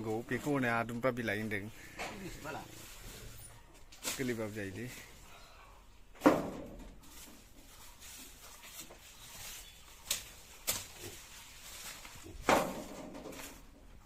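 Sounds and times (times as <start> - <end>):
leaves rustling: 2.2 - 5.6, 6.7 - 14.0.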